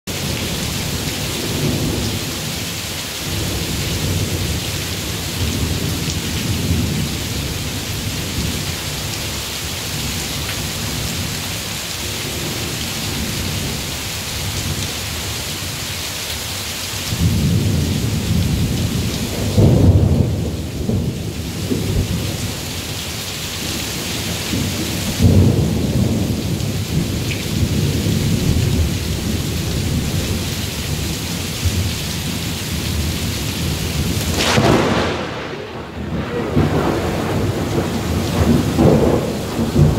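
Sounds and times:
heavy rain: 0.1 - 39.9
thunder rumbling: 24.2 - 39.9.

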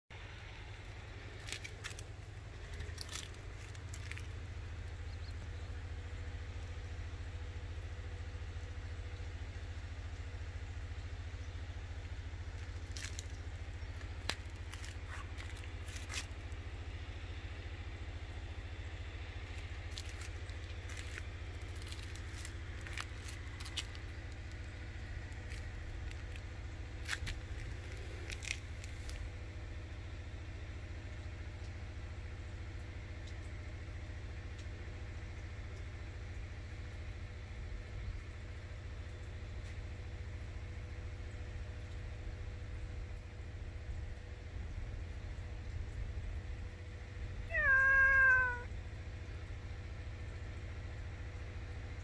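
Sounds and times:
soft crackles and crunches: 0.3 - 6.0, 12.0 - 17.2, 18.1 - 29.8.

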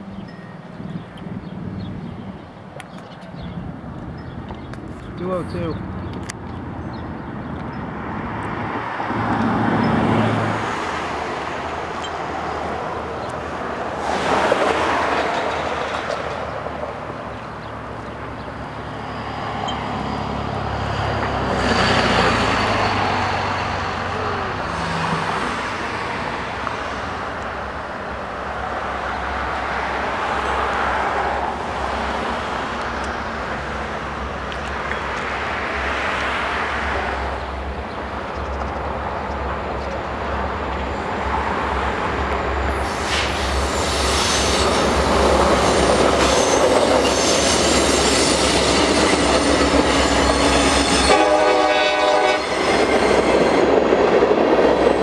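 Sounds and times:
cars and trucks passing: 0.0 - 55.0
low traffic rumble: 0.0 - 55.0.

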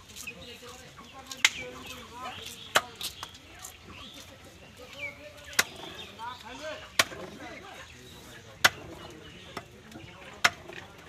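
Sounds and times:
blade chopping meat: 6.9 - 7.3, 8.6 - 9.1.

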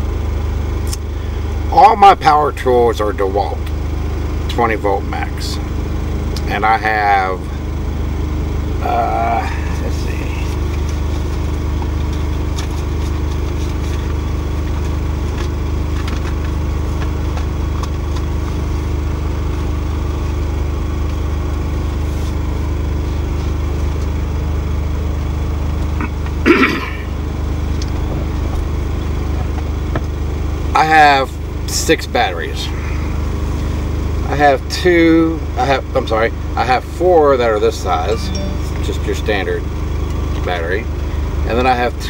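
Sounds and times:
truck engine idling: 0.0 - 42.0.

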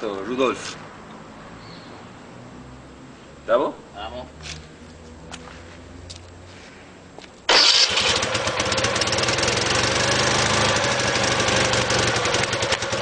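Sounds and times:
flat-twin engine running: 7.5 - 13.0.

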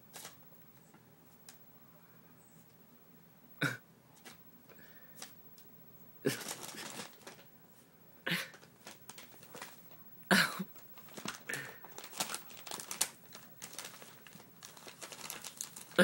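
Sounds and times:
paper bag crinkling: 6.3 - 7.5, 8.5 - 10.0, 10.7 - 16.0.

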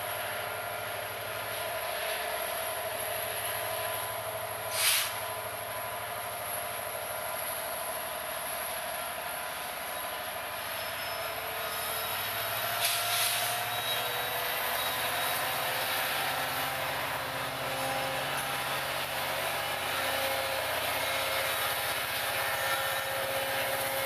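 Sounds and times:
diesel locomotives rolling past: 0.0 - 24.0
rail noise: 0.0 - 24.0
short burst of hiss: 4.7 - 5.3, 12.8 - 13.6.

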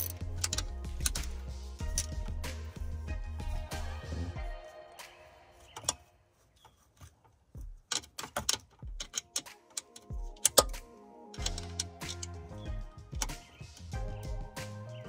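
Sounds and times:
metallic clicks and clinks: 0.0 - 2.2, 7.9 - 10.8, 11.4 - 12.4.

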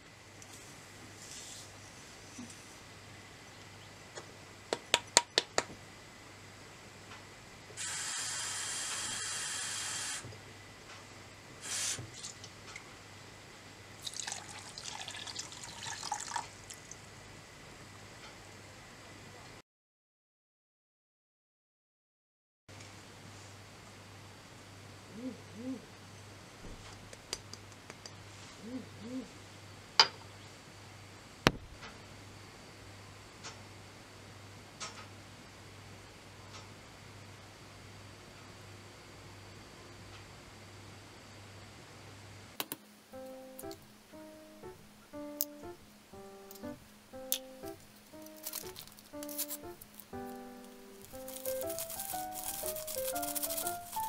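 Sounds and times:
water running: 11.6 - 12.8, 14.0 - 17.1
water poured into a saucepan: 14.0 - 17.0
steady low hum: 23.0 - 52.0
bird hooting softly: 25.1 - 26.2, 28.4 - 29.5.

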